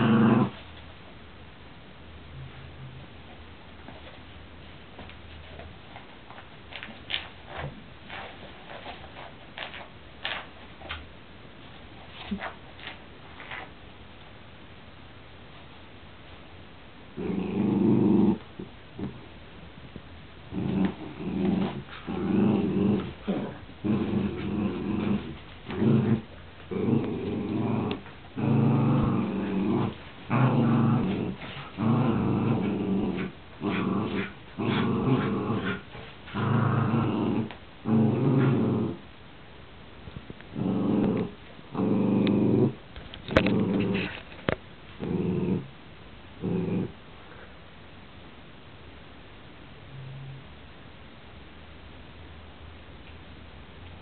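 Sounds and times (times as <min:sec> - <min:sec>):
dogs play-growling: 0:00.0 - 0:00.6, 0:17.2 - 0:19.2, 0:20.5 - 0:39.0, 0:40.5 - 0:45.7, 0:46.4 - 0:47.0.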